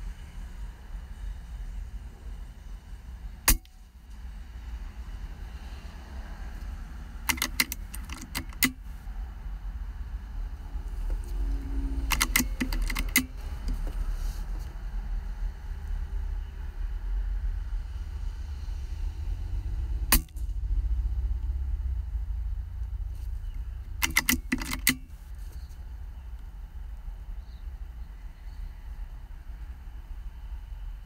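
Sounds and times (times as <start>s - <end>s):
steady low rumble: 0.0s - 24.0s
air rifle metallic clicks: 3.5s - 3.8s, 6.6s - 9.0s, 11.0s - 14.0s, 23.5s - 25.3s.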